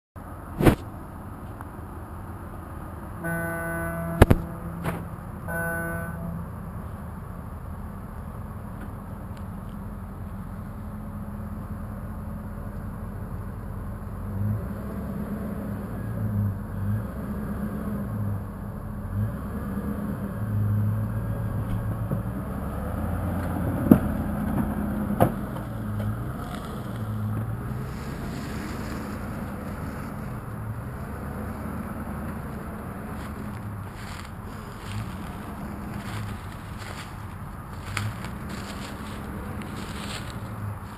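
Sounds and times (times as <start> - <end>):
engine revving under load: 3.2 - 7.0, 14.1 - 40.9.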